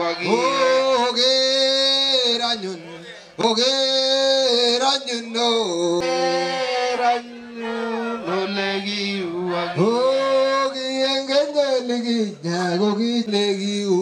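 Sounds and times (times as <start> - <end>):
group of people chanting: 0.0 - 1.2, 6.0 - 10.8.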